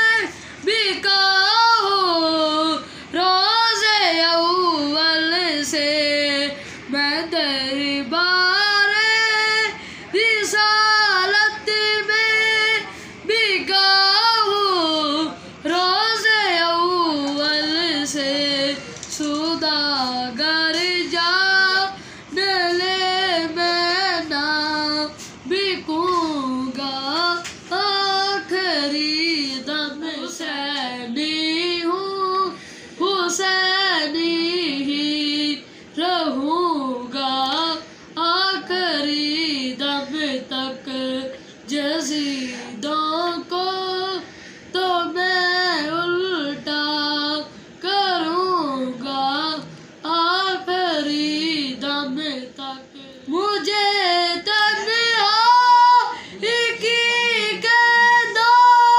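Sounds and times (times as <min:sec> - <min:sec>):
boy singing unaccompanied: 0:00.0 - 0:58.9.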